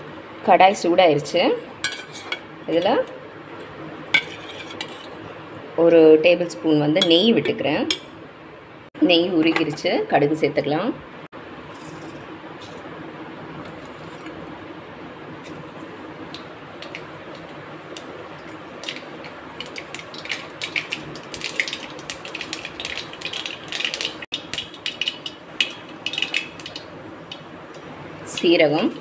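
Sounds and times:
seeds sizzling and popping in oil: 16.2s - 28.5s.

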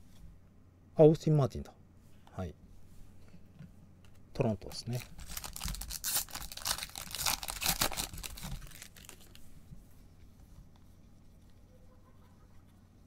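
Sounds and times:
foil wrapper tearing and crinkling: 4.7s - 9.4s.

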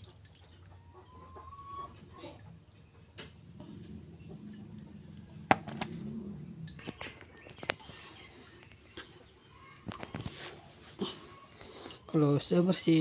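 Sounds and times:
plastic basin clicks and knocks: 5.5s - 5.9s.

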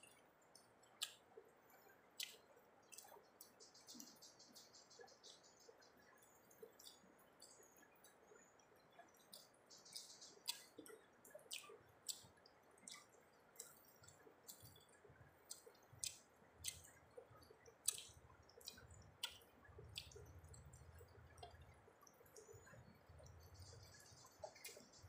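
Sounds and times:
person chewing with mouth clicks: 1.0s - 1.2s, 2.2s - 3.5s, 9.3s - 12.3s, 12.9s - 14.8s, 15.5s - 21.7s.

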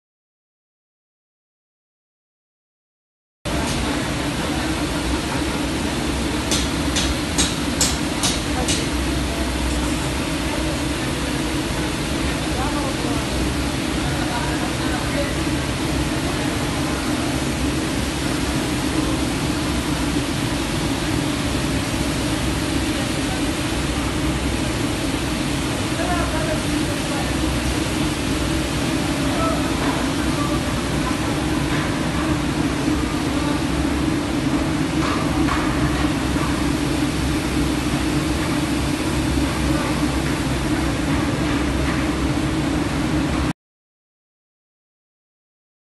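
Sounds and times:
machine fans rushing with low hum: 3.5s - 43.5s.

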